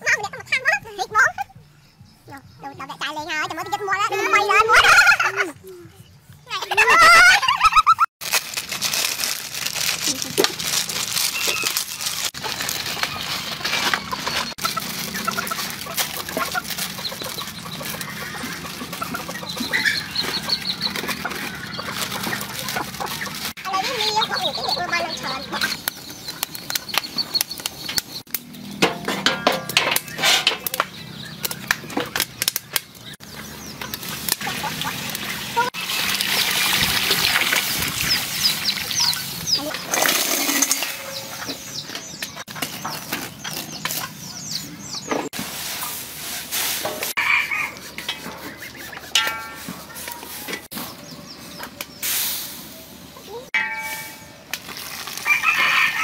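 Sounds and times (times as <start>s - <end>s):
chickens clucking: 11.4s - 54.4s
noodles splashing in metal wok: 34.4s - 39.0s.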